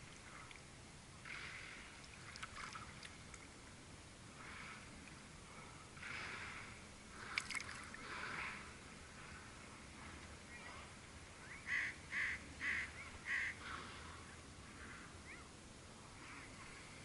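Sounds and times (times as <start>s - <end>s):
crow cawing: 11.7s - 14.1s.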